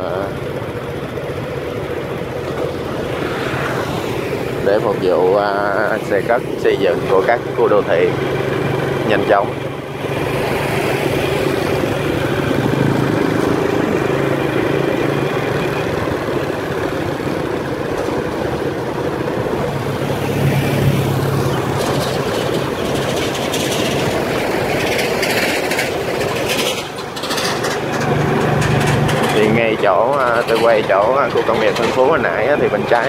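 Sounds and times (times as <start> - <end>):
motorbike engine cruising: 0.0 - 33.0
road noise: 0.0 - 33.0.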